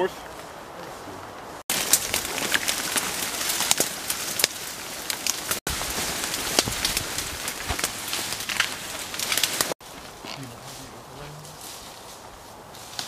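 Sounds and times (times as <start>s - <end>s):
rustling through dry brush: 0.0s - 13.0s
twigs snapping: 1.2s - 10.4s.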